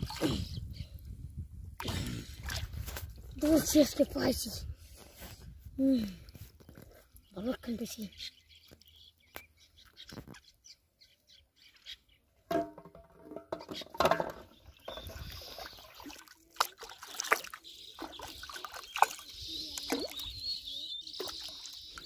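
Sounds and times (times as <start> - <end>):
water splashing and sloshing: 0.0 - 0.7, 1.7 - 4.3, 12.5 - 22.0
birds chirping: 0.0 - 1.2, 6.0 - 12.4, 13.5 - 22.0.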